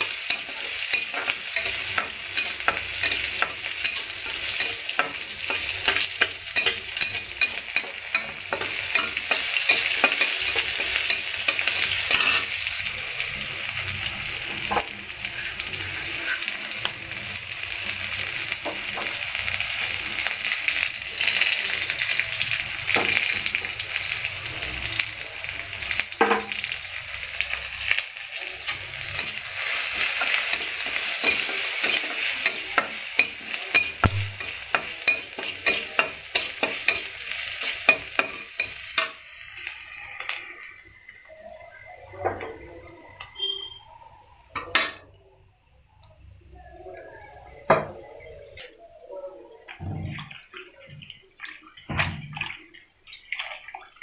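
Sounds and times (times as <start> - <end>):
metal spatula scraping pan: 0.0 - 12.7
onions sizzling in hot oil: 0.0 - 45.1.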